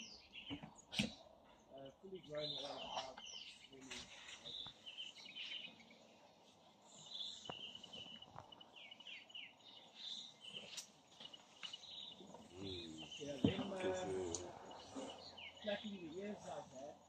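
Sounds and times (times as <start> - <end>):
high bird chirps: 0.0 - 1.4, 6.9 - 16.4.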